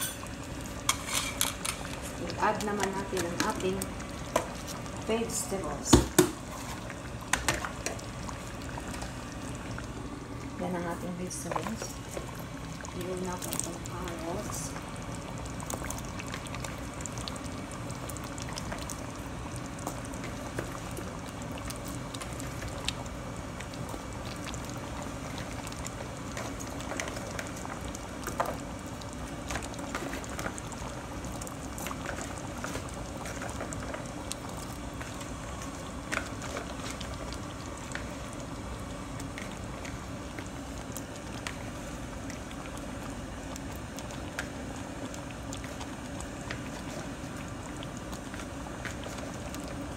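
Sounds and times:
sauce bubbling in a pan: 0:00.0 - 0:49.9.

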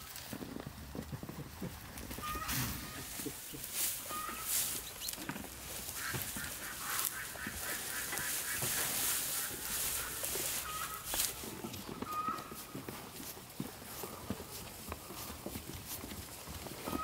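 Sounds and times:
birds chirping: 0:02.1 - 0:12.8.

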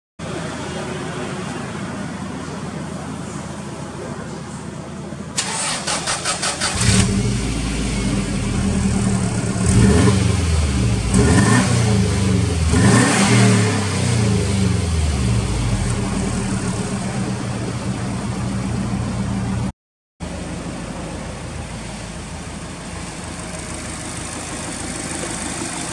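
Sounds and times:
starter motor cranking: 0:05.4 - 0:07.0
car engine revving and idling: 0:05.4 - 0:19.7, 0:20.3 - 0:25.9.

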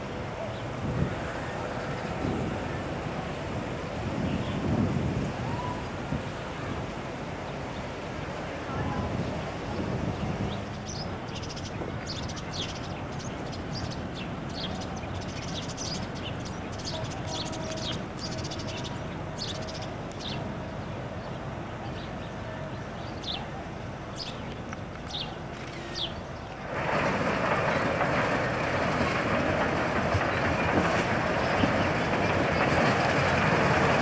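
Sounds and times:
small birds chirping: 0:10.1 - 0:26.5.

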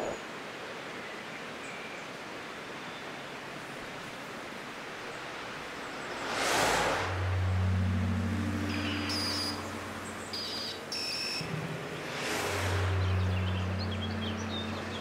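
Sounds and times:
whooshing swell of noise: 0:05.3 - 0:15.0
low electronic drone: 0:06.1 - 0:15.0.

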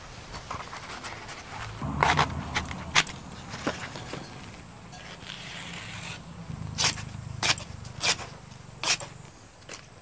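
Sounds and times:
rustling scrape of stalks: 0:00.0 - 0:09.2
knife slicing stalks: 0:06.8 - 0:09.2.

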